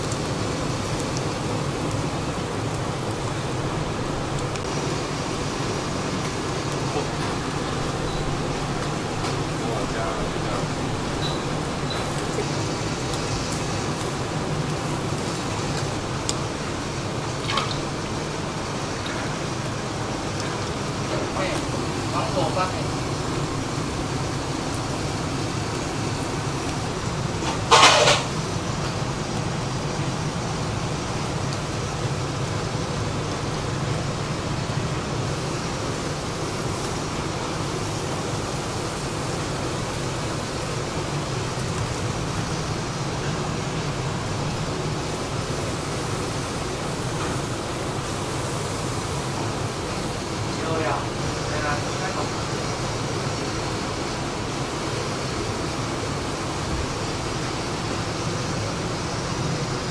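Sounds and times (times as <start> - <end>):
liquid dripping and splashing: 0.0 - 34.9
low hum and hiss: 0.0 - 59.9.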